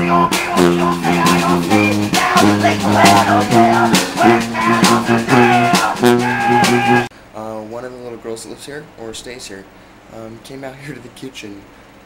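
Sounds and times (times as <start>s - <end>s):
upbeat instrumental music: 0.0s - 7.1s.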